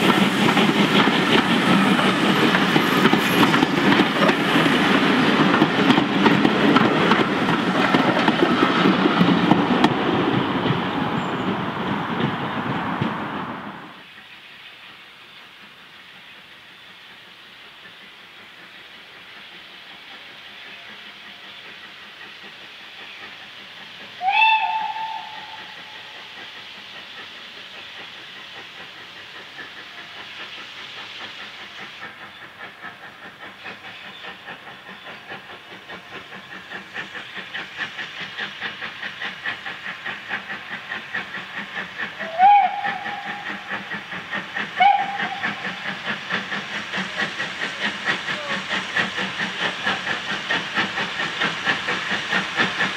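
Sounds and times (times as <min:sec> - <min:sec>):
steam locomotive exhaust beats: 0:00.0 - 0:52.9
steam locomotive whistle: 0:24.2 - 0:26.2, 0:42.2 - 0:43.7, 0:44.8 - 0:45.8.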